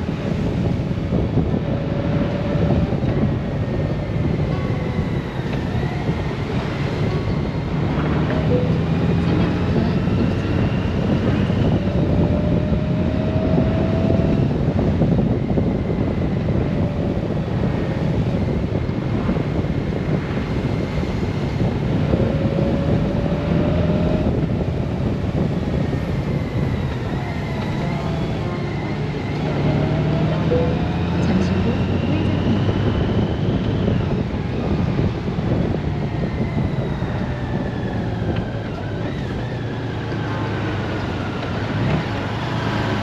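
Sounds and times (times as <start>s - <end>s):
motorcycle riding at road speed: 0.0s - 43.0s
wind rush: 0.0s - 43.0s
faint rising whine: 25.9s - 33.1s.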